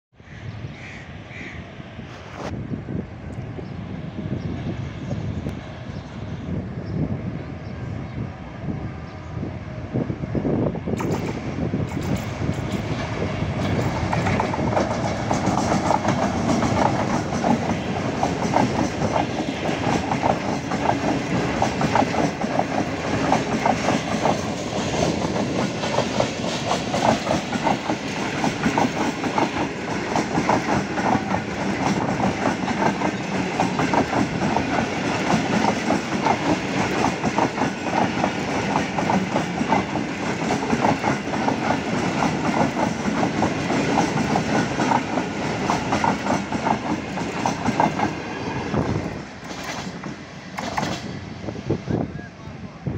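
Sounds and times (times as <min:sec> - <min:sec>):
train passing at speed: 0:00.2 - 0:52.9
wheels clattering over rail joints: 0:49.0 - 0:51.1.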